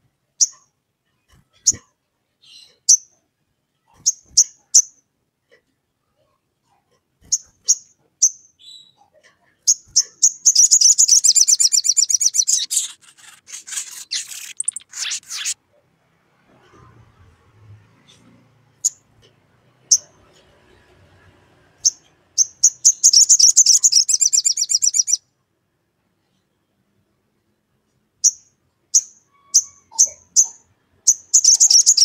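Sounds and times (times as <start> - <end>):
bird chips and chattering trill: 9.7 - 15.6, 22.4 - 25.2, 31.3 - 32.0.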